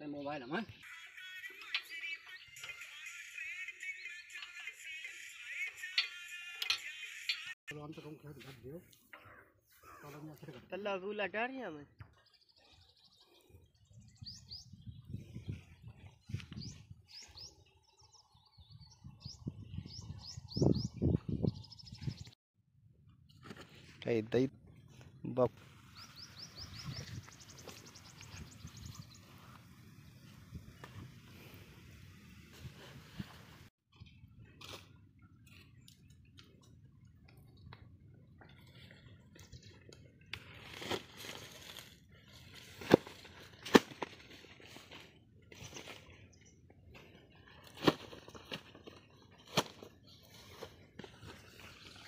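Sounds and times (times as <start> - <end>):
birds chirping: 0.0 - 7.6, 11.8 - 22.4, 24.7 - 32.4
canvas hose rustling on dry ground: 40.4 - 46.2, 47.0 - 52.0.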